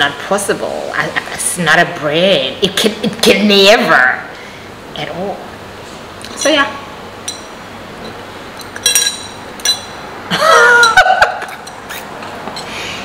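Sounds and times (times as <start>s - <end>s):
glass bottle clinking: 7.2s - 10.0s
woman laughing: 10.3s - 12.0s.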